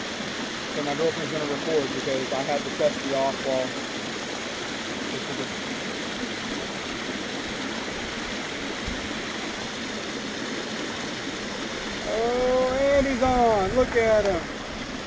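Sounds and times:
water rushing over rocks: 0.0 - 15.0.

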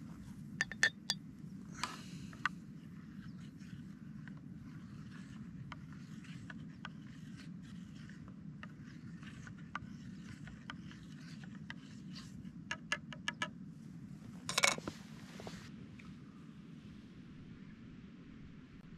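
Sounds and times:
spork clattering in mug: 0.6 - 1.2
spork scraping in pot: 0.6 - 1.2
spork tapping: 0.6 - 1.2.

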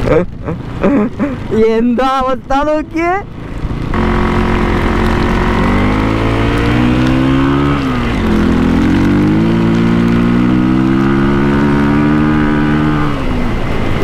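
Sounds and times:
motorcycle engine accelerating: 3.5 - 14.0.

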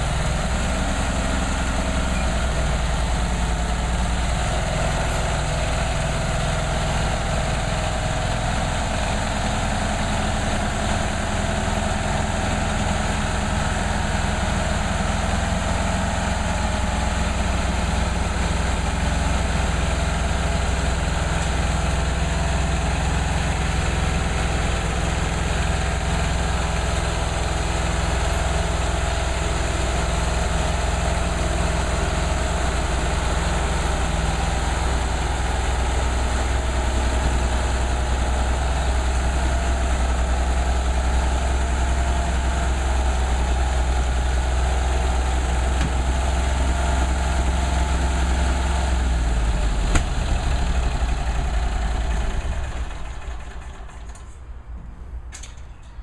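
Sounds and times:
stump grinder engine running: 0.0 - 54.1.

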